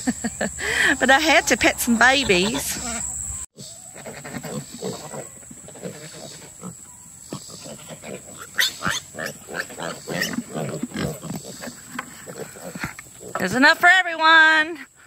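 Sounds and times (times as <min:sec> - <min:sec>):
pigs grunting and squealing: 0:03.6 - 0:13.5.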